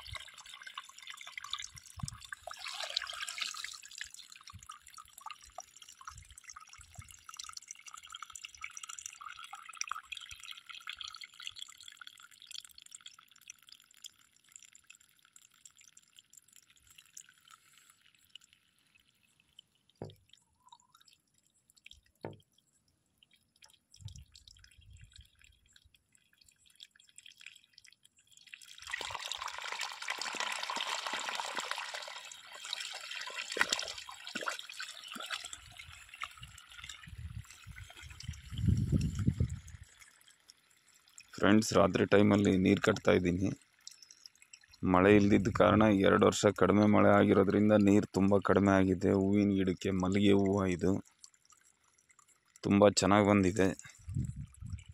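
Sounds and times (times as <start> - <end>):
water splashing from outlet pipe: 0.0 - 18.8, 23.6 - 46.4.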